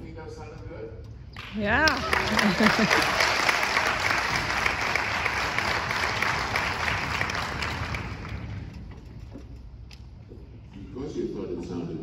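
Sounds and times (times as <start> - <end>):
audience applauding: 1.4 - 8.6.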